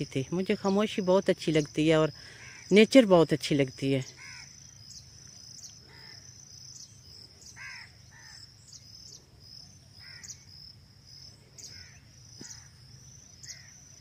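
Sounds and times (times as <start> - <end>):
insects trilling: 0.0 - 14.0
bird harsh calls: 4.0 - 9.2, 10.0 - 10.5, 11.5 - 14.0.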